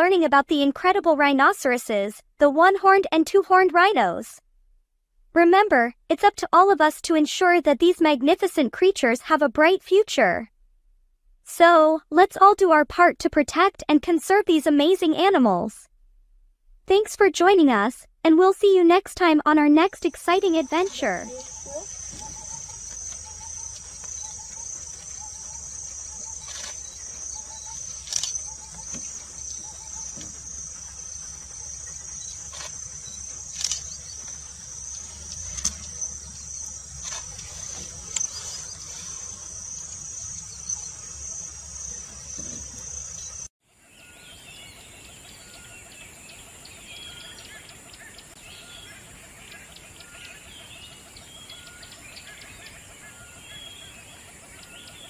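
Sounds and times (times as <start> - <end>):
insect chirring: 19.8 - 43.5
bird chirps: 19.8 - 55.0
sharp clicks: 20.7 - 30.5, 32.2 - 36.2, 37.0 - 38.4.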